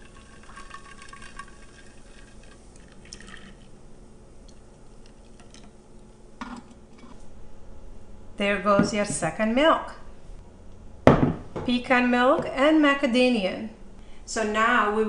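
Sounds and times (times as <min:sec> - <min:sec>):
milk trickling and dripping: 0:00.0 - 0:03.7.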